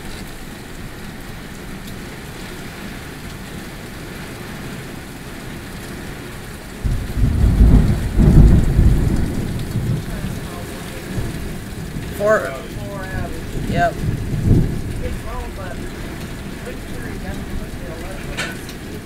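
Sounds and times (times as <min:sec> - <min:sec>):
heavy rain: 0:00.0 - 0:19.0
thunder rumbling: 0:01.5 - 0:19.0.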